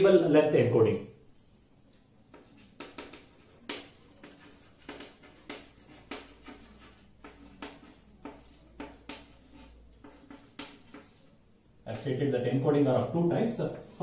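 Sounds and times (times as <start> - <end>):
chalk scratching on chalkboard: 1.8 - 11.4, 13.0 - 14.0.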